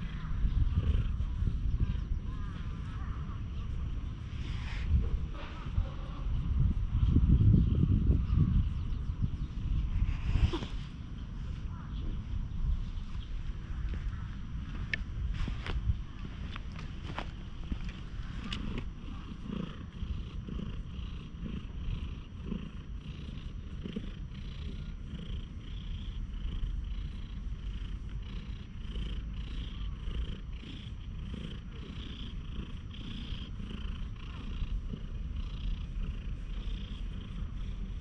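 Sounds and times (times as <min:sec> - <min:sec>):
cat purring: 0:00.0 - 0:38.0
hand brushing over fur: 0:09.8 - 0:11.7.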